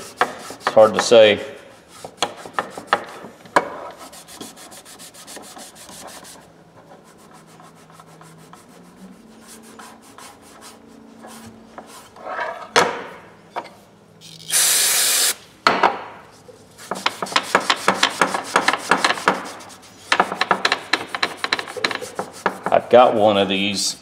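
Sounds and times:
aerosol spray hiss: 14.5 - 15.4.

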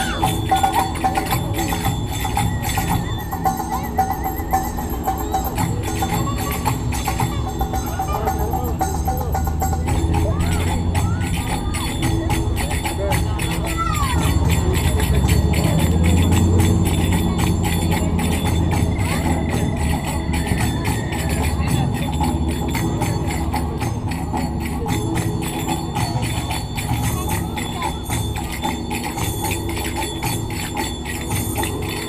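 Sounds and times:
metallic costume jingling: 0.0 - 32.0.

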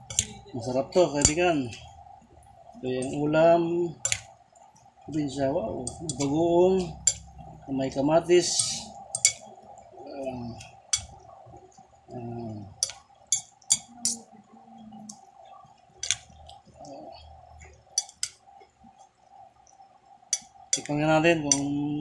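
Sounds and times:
metal spoon clinking on a dish: 0.0 - 0.3, 8.5 - 9.4.

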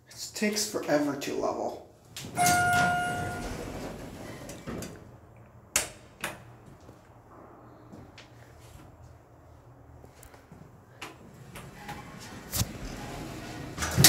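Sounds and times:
elevator doors sliding open: 2.2 - 5.2, 11.0 - 14.0
elevator chime: 2.4 - 4.2.

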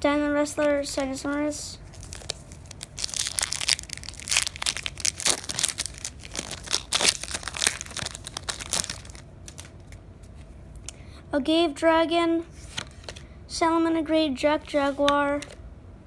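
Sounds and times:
foil wrapper crinkling and tearing: 1.8 - 10.0.

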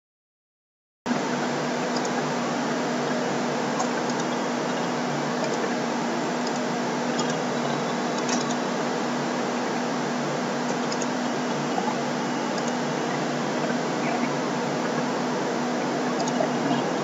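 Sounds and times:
low hum: 1.1 - 17.0
computer mouse clicks: 7.2 - 7.4, 8.2 - 8.6, 10.8 - 11.1, 16.2 - 16.4.

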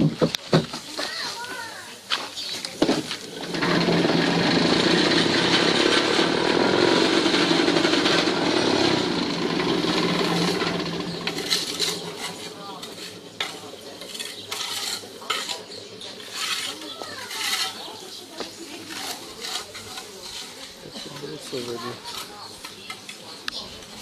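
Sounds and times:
vibrator motor rattling hum: 3.2 - 16.6.

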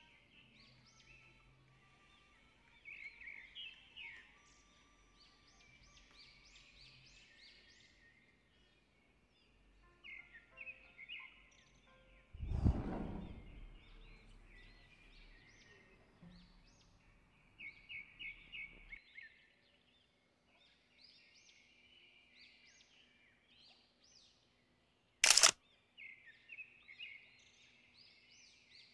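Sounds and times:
small birds chirping: 0.0 - 28.9
camera shutter click: 25.2 - 25.6.

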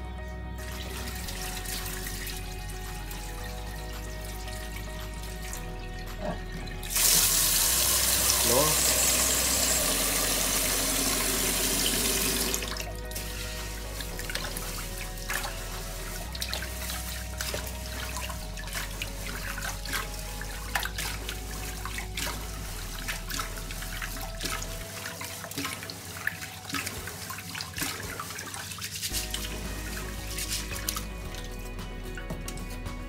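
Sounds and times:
hands swishing rice in water: 12.8 - 31.6.

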